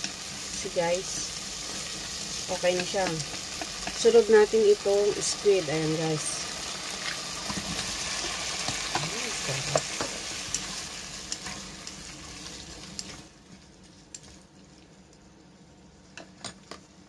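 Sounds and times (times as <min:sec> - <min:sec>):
squid sizzling in hot oil: 0:00.0 - 0:13.5.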